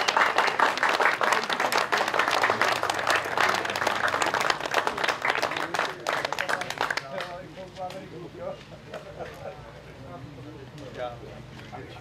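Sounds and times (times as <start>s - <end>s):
crowd applauding: 0.0s - 7.4s.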